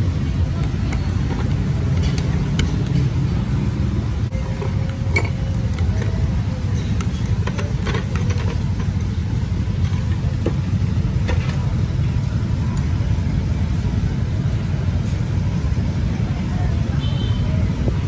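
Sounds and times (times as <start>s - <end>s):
street traffic rumble: 0.0s - 18.0s
chopsticks clicking on dishes: 0.9s - 3.3s.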